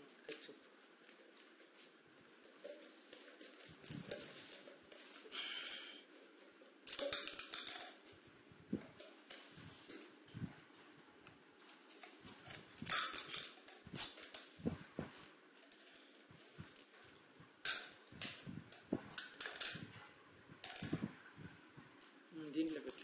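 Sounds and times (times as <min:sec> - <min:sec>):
plastic bottles crinkling: 0:11.7 - 0:21.3.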